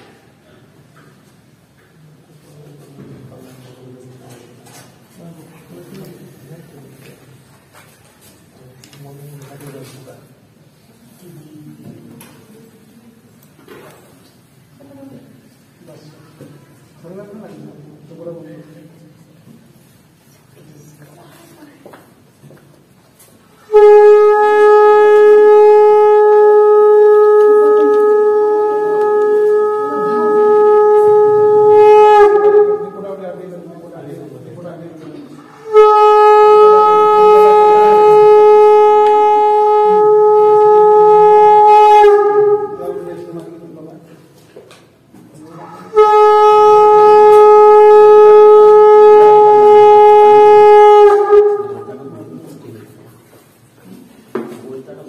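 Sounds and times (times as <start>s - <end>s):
conch shell blown: 23.5s - 33.6s, 35.3s - 43.7s, 45.4s - 52.6s.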